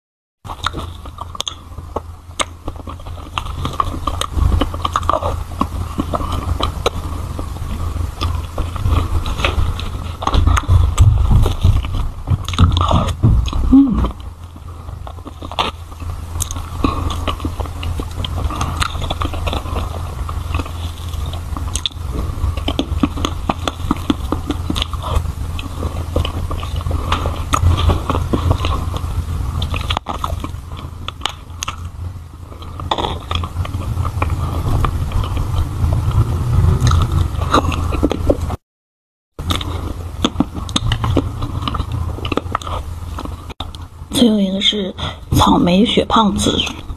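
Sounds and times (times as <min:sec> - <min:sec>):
chewing: 0:00.5 - 0:38.6, 0:39.4 - 0:43.9
steady low hum: 0:00.5 - 0:38.6, 0:39.4 - 0:46.9.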